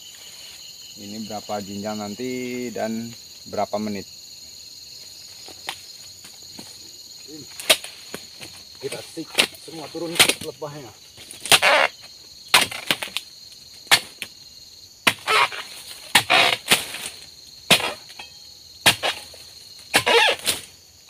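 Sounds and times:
cut fronds rustling: 5.4s - 11.9s, 12.5s - 14.4s, 15.0s - 20.8s
chisel chopping palm stalks: 7.6s - 10.6s, 11.4s - 11.9s, 12.5s - 13.2s, 13.8s - 14.3s, 15.0s - 20.7s.

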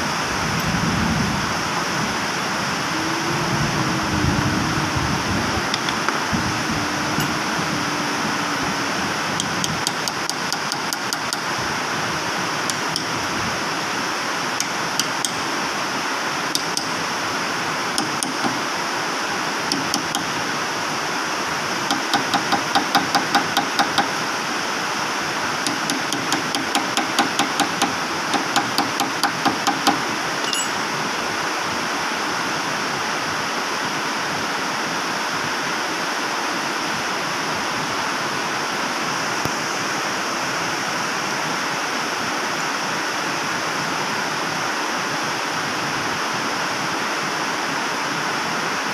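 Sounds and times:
steady background noise: 0.0s - 48.9s
hammer striking steel punch: 15.0s - 15.4s, 25.7s - 30.9s.

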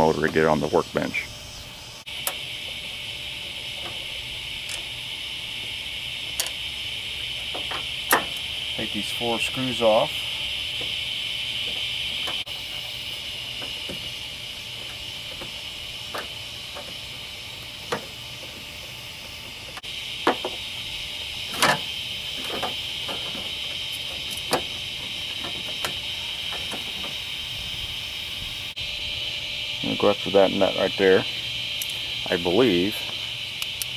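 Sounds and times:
steady high-pitched hiss: 0.0s - 33.9s.

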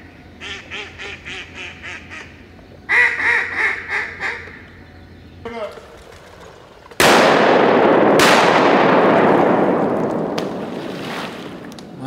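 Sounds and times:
shotgun blasts with echo: 7.0s - 11.7s.

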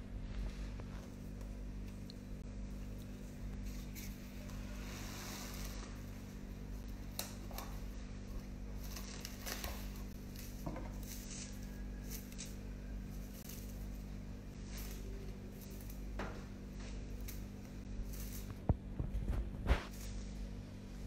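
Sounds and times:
steady low hum: 0.0s - 21.0s
plastic wrap crinkling: 2.8s - 20.6s
plastic wrap snapping: 6.9s - 8.0s.

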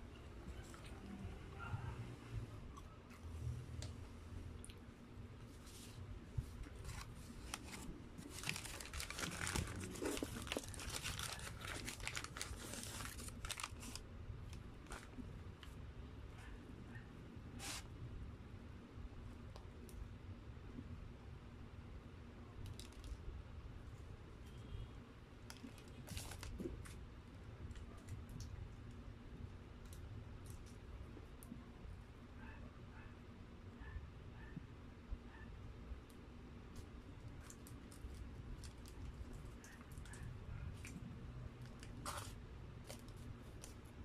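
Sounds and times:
plastic sachet being handled: 5.6s - 15.2s, 25.5s - 27.0s, 37.3s - 41.0s
paper wrapper crinkling: 6.5s - 14.1s, 14.8s - 15.2s, 25.5s - 27.0s, 41.6s - 43.9s.

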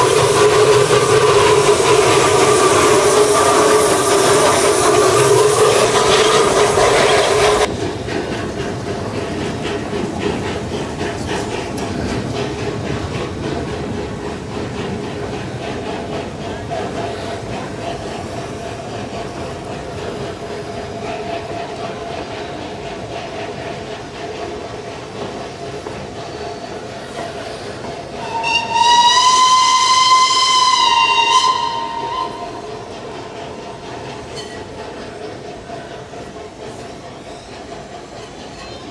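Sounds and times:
steam locomotive whistle: 0.0s - 7.7s, 28.2s - 32.9s
steam train rhythmic clatter: 0.0s - 38.9s.

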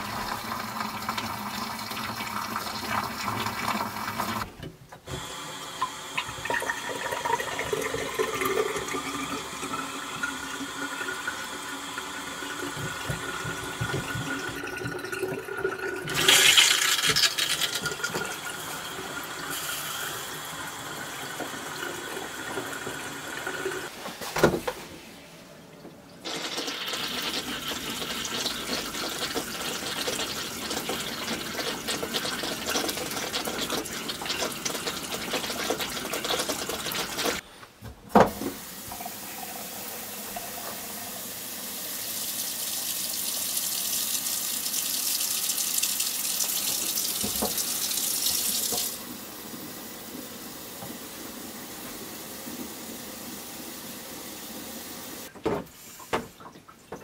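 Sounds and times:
water running from faucets: 0.0s - 4.5s, 5.2s - 23.9s, 26.2s - 37.4s, 38.5s - 57.0s
faucet hissing into steel sink: 38.7s - 49.1s.

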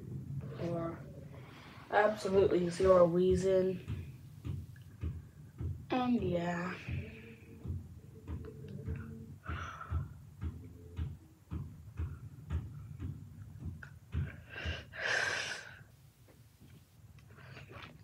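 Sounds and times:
dull low thumps: 2.2s - 14.8s.

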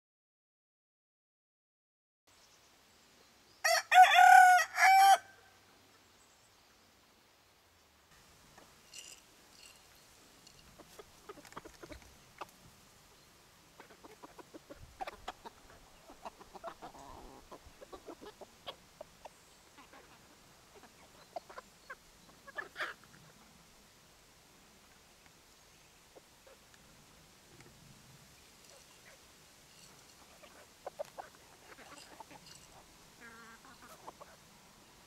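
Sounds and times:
loud chicken call: 3.6s - 5.6s
chickens clucking: 8.5s - 12.9s, 13.6s - 23.6s, 28.6s - 34.8s.

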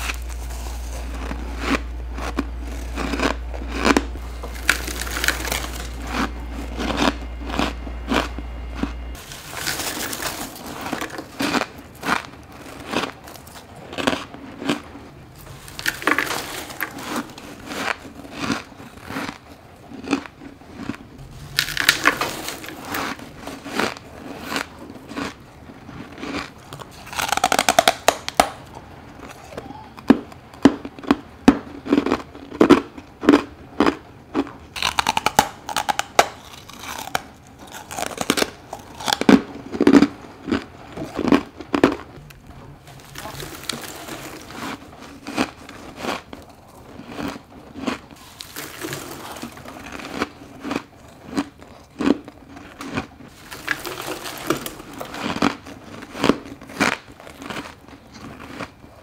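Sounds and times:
person crunching frost: 0.0s - 59.0s.

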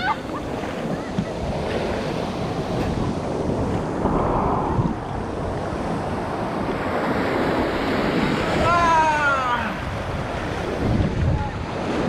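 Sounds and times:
ocean surf washing and foaming: 0.0s - 12.0s
wind buffeting microphone: 0.0s - 12.0s.

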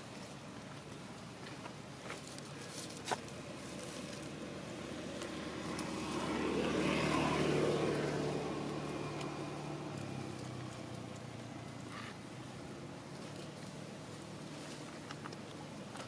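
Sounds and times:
motor vehicle passing by: 3.4s - 15.0s.

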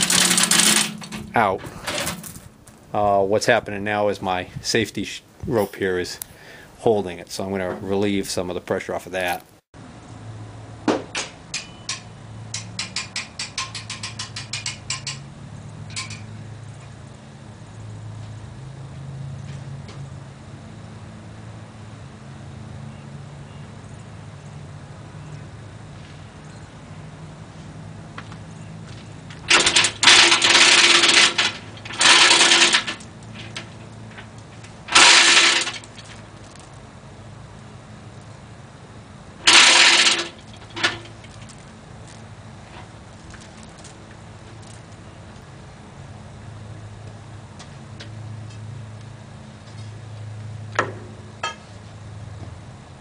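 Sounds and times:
chain hoist metallic clicking: 0.0s - 2.4s, 11.5s - 15.3s, 15.9s - 16.3s, 29.4s - 36.8s, 39.4s - 41.6s
tractor engine idling: 0.0s - 3.3s, 28.1s - 48.0s.

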